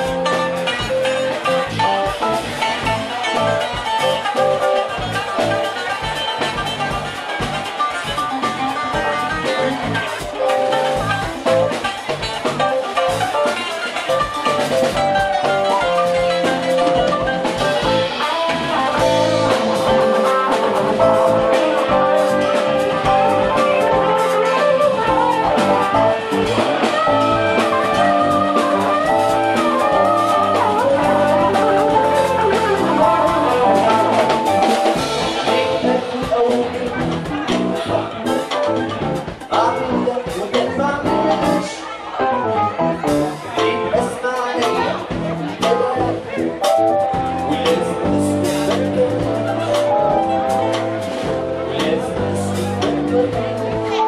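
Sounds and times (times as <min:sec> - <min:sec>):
jazz fusion band playing: 0:00.0 - 0:54.0
saz picking melodic line: 0:00.0 - 0:54.0.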